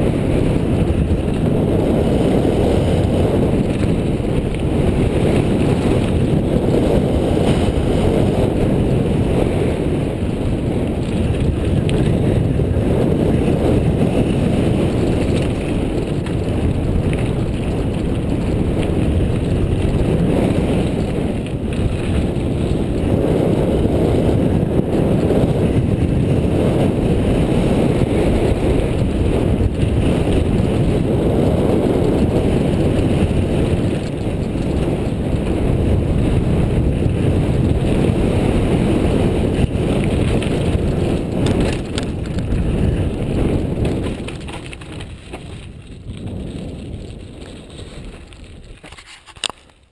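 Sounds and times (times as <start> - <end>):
bike clicks and rattles: 0.0 - 49.9
wind rushing over microphone: 0.0 - 49.9
tyres rolling over rocky ground: 0.4 - 9.4, 10.1 - 23.1, 28.5 - 49.9.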